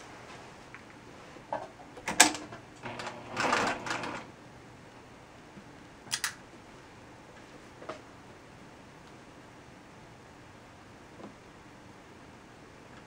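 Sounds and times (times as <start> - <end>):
sewing machine clicks: 2.2 - 4.3.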